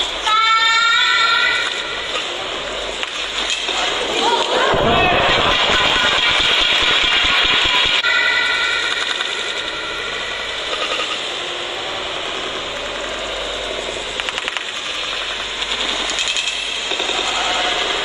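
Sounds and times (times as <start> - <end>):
arena crowd noise: 0.0 - 14.2.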